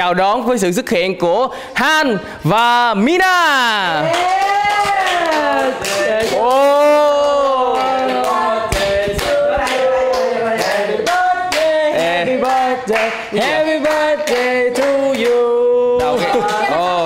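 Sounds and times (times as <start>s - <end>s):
people clapping to a beat: 3.6s - 17.0s
people singing together: 5.3s - 17.0s.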